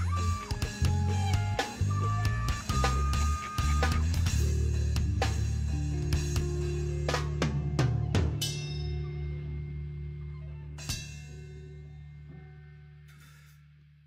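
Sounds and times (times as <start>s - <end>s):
drum and cymbal hits: 0.0s - 9.4s
held low chord: 0.0s - 13.7s.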